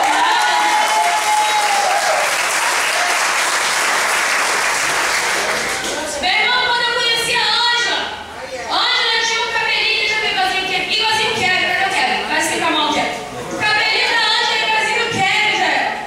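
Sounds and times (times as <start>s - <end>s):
congregation applauding: 0.0s - 6.2s.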